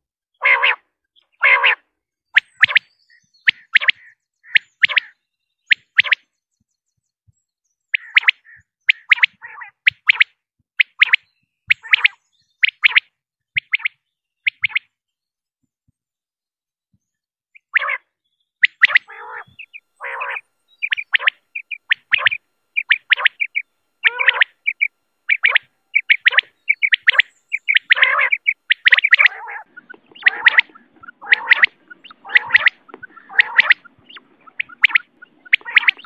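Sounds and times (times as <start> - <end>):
quail calling: 0.4 - 6.2, 7.9 - 14.9, 17.6 - 36.0
low hum: 19.0 - 36.0.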